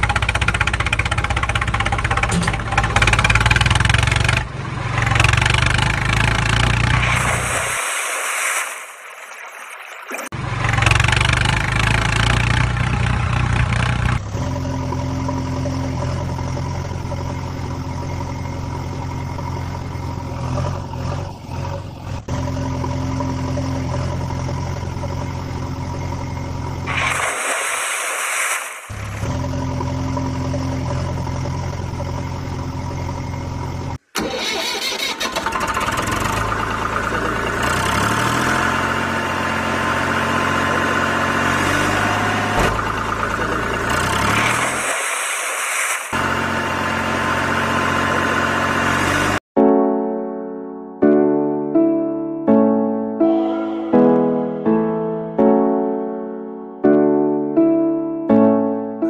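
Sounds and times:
engine idling drone: 0.0 - 8.4, 10.4 - 49.3.

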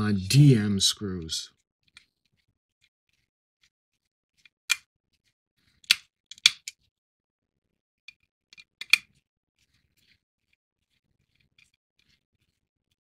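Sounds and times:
plastic parts and screws clicking: 4.0 - 6.9, 8.1 - 12.6.

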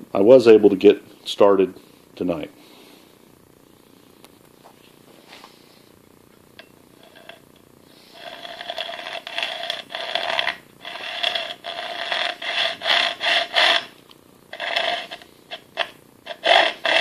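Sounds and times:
hacksaw cutting metal: 8.2 - 13.9, 14.6 - 17.0.

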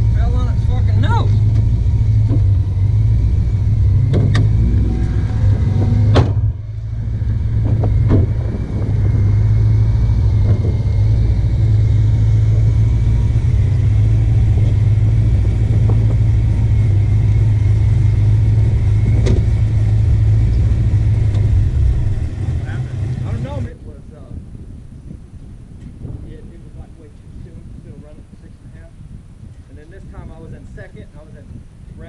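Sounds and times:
car engine idling: 0.0 - 23.8.

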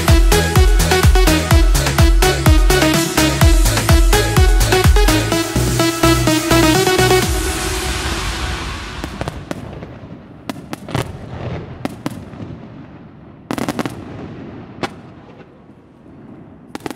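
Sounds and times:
music: 0.0 - 9.6
fireworks popping and banging: 9.0 - 12.6, 13.4 - 15.6, 16.6 - 16.9.

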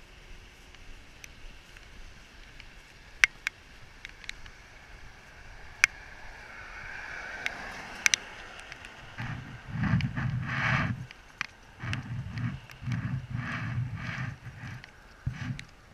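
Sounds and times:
car tyres hissing on wet pavement: 0.0 - 15.9.

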